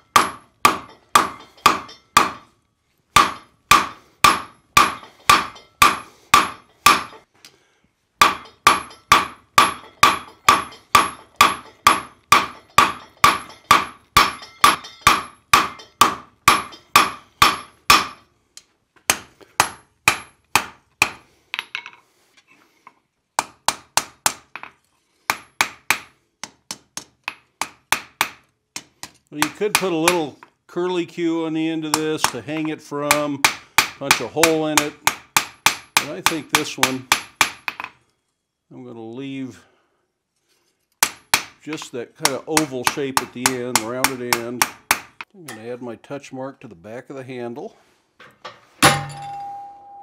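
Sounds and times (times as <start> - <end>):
hammer ringing on anvil: 8.2 - 18.2, 48.8 - 50.0.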